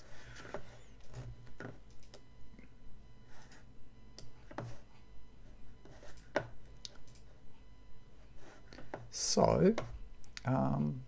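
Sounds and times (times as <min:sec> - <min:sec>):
faint steady hum: 0:00.0 - 0:11.0
computer mouse clicks: 0:01.8 - 0:02.2, 0:06.1 - 0:07.3.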